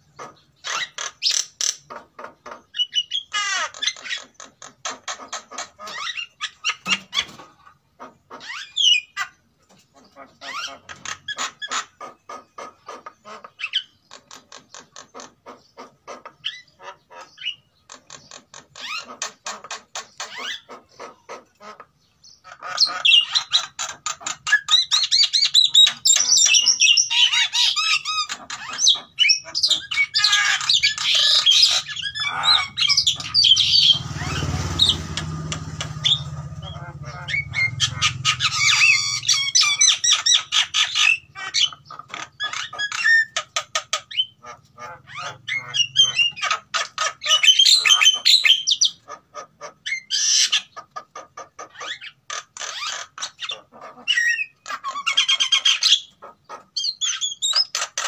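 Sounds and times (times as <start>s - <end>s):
mynas squawking and whistling: 22.5s - 49.1s.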